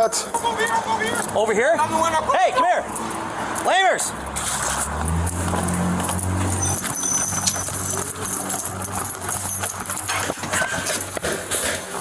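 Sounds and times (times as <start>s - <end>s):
footsteps and knocks: 4.3s - 12.0s.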